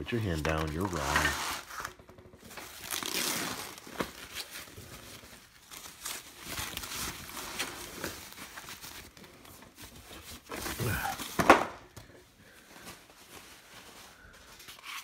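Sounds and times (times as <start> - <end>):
plastic wrap and foam rustling: 0.0 - 15.0.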